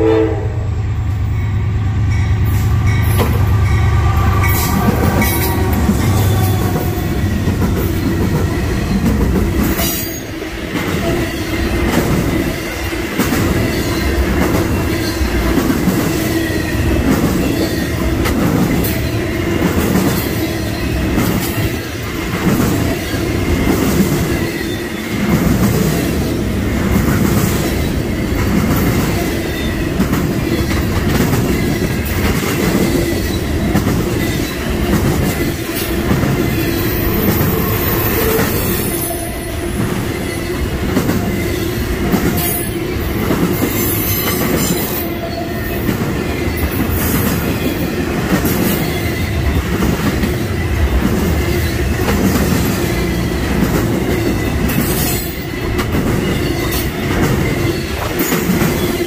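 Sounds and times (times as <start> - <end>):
freight train wheels clickety-clack: 1.0 - 59.0
high-pitched wheel squeals: 4.0 - 7.2, 36.5 - 40.7.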